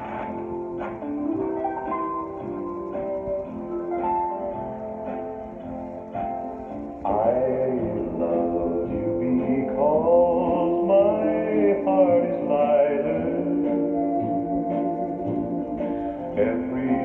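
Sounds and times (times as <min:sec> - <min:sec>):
man singing recorded song: 0:07.0 - 0:17.0.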